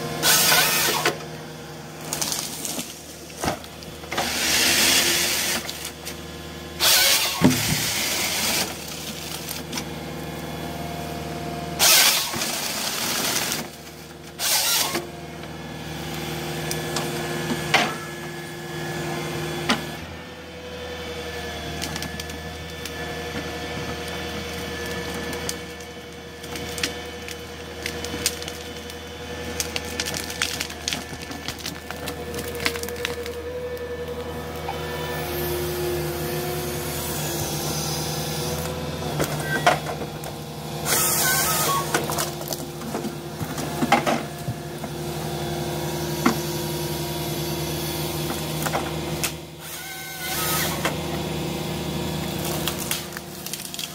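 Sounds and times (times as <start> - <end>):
loud rushing sawing bursts: 0.0 - 1.2, 4.2 - 5.7, 6.8 - 9.3, 11.8 - 13.7, 14.4 - 15.0, 34.7 - 38.6, 40.6 - 42.1, 49.6 - 50.9
harvester engine and hydraulics: 0.0 - 53.9
wood and branches cracking: 2.0 - 4.0, 6.9 - 9.9, 24.4 - 34.8, 38.5 - 44.9, 52.3 - 53.9.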